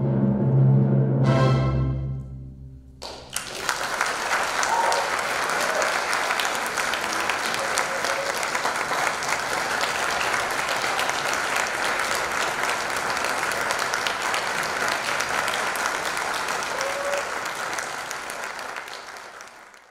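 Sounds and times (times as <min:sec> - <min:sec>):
audience applauding: 0:03.0 - 0:19.9.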